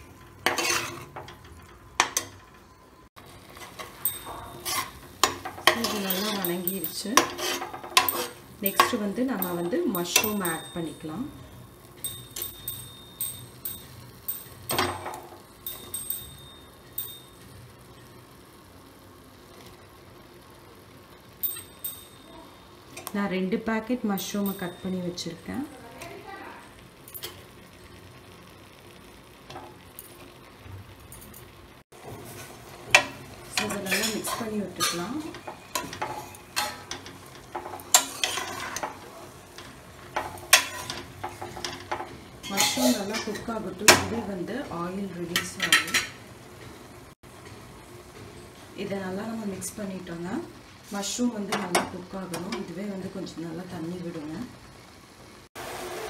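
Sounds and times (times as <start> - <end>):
metal spoon scraping a pot: 0.2 - 2.4, 3.6 - 10.7, 32.3 - 43.5
spoon tapping metal pot: 3.8 - 11.2, 12.0 - 17.5, 21.4 - 23.2, 24.2 - 25.5.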